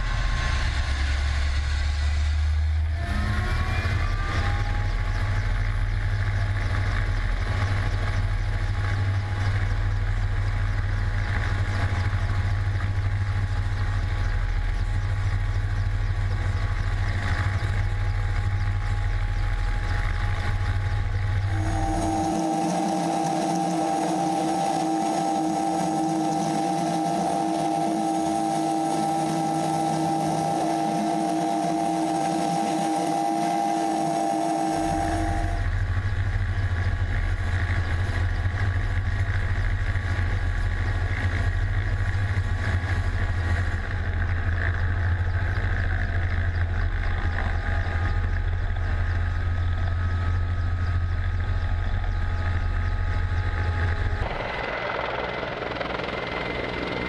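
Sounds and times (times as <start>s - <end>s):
deep rumble of rotor downwash: 0.0s - 57.0s
helicopter engine whine: 0.0s - 57.0s.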